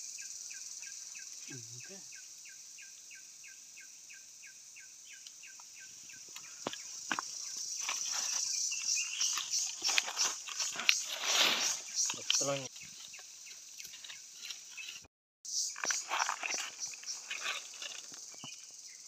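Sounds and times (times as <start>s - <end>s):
high insect buzz: 0.0s - 19.0s
clicks and rustles: 6.3s - 13.2s, 15.8s - 18.6s.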